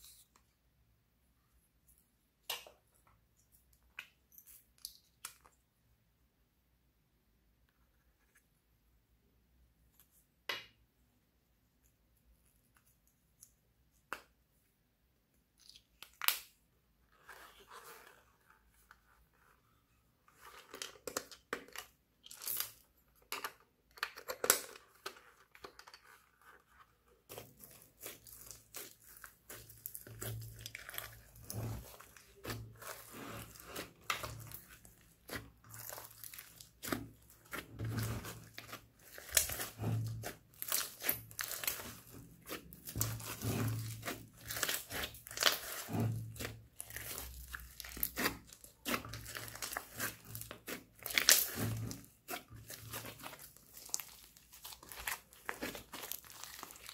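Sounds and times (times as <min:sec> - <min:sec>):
hands squishing slime: 0:26.1 - 0:56.9
wet crackles and pops: 0:28.1 - 0:56.9.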